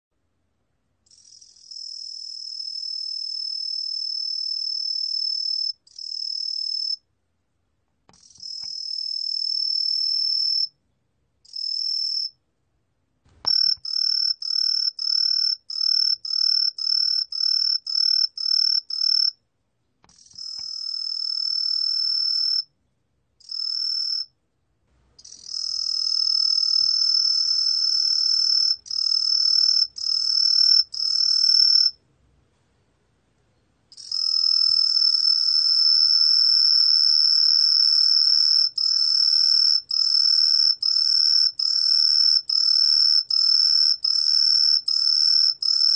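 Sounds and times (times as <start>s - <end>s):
cricket chirps: 1.0s - 7.1s, 8.2s - 10.8s, 11.4s - 12.4s, 13.4s - 19.4s, 20.1s - 22.7s, 23.4s - 24.4s, 25.2s - 32.0s, 33.9s - 45.9s
cricket trilling: 1.1s - 7.0s, 11.5s - 12.4s, 13.5s - 19.4s, 20.2s - 22.7s, 23.4s - 24.3s, 25.2s - 32.0s, 33.9s - 45.9s.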